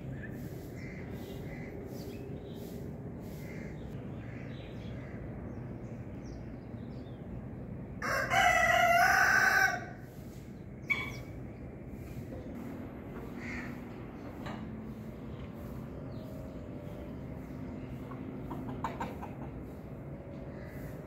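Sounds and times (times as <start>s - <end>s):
rooster crowing: 8.0s - 10.0s.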